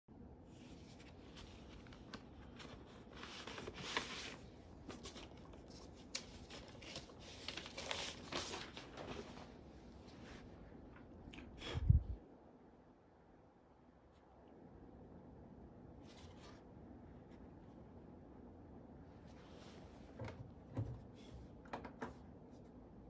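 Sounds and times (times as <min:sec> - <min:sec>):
faint rustling and handling noise: 0:00.5 - 0:12.1, 0:16.0 - 0:18.0, 0:19.0 - 0:23.0.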